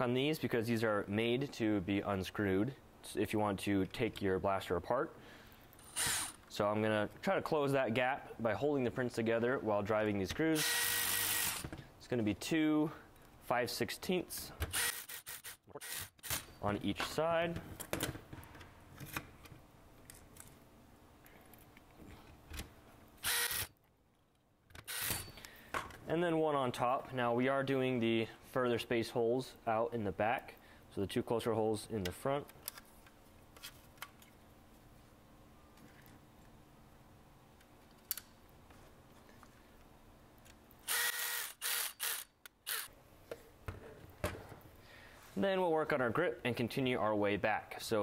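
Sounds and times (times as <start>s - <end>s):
cordless drill driving a screw: 5.9s - 6.4s, 10.6s - 11.6s, 14.7s - 16.4s, 23.2s - 23.7s, 24.9s - 25.2s, 40.8s - 42.9s.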